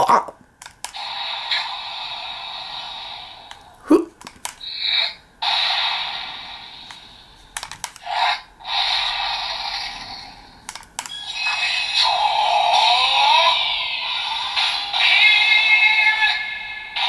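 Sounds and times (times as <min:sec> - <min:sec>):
toy button clicks: 0:10.7 - 0:11.2
sliding electronic tones: 0:11.0 - 0:13.6.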